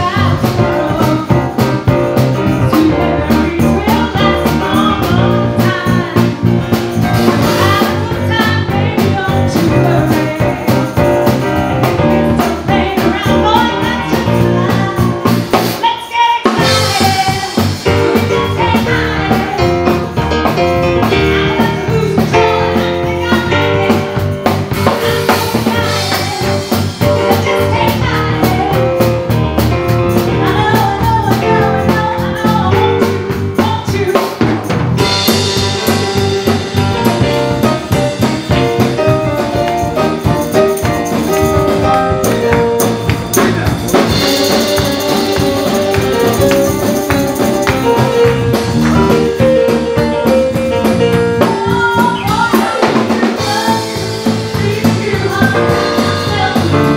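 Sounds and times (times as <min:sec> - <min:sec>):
woman singing: 0:00.0 - 0:06.6, 0:07.2 - 0:34.4, 0:43.4 - 0:56.9
rock band playing live: 0:00.0 - 0:56.9
cymbals: 0:34.6 - 0:50.2.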